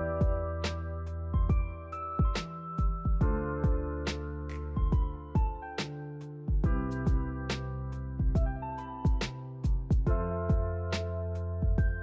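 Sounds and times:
held instrumental chords: 0:00.0 - 0:12.0
drum beat: 0:01.5 - 0:03.9, 0:04.8 - 0:05.6, 0:08.2 - 0:10.8.

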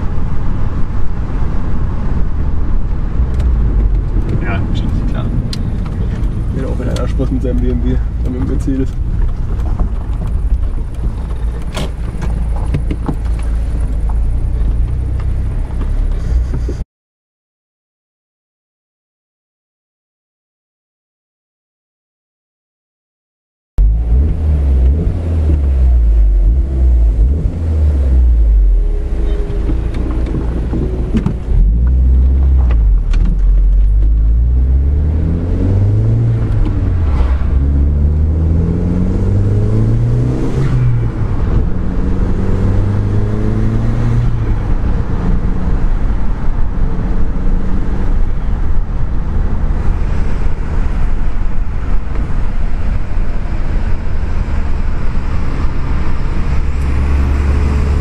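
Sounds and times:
car engine accelerating: 0:00.0 - 0:16.8, 0:23.8 - 0:58.0.

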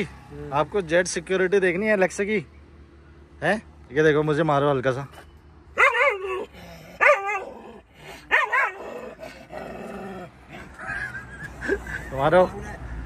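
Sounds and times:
dog barking: 0:05.8 - 0:07.5, 0:08.3 - 0:08.9
dog growling: 0:06.4 - 0:10.7.

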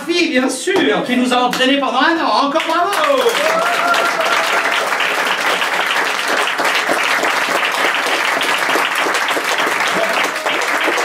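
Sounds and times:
audience applause: 0:02.6 - 0:11.0.

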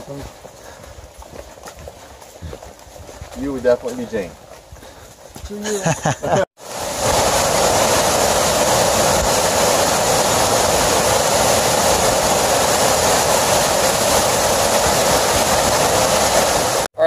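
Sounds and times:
waterfall rushing: 0:06.6 - 0:16.9.

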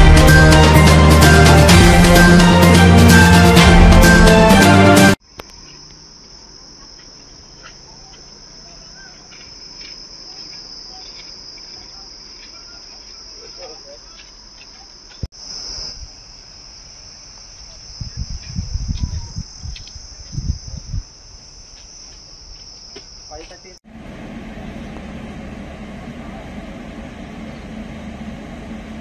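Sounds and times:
insects chirring: 0:05.2 - 0:23.8.

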